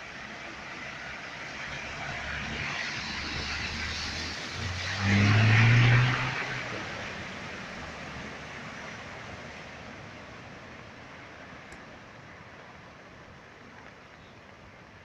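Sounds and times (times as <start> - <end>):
water rushing: 0.0 - 15.0
car engine: 0.8 - 10.1.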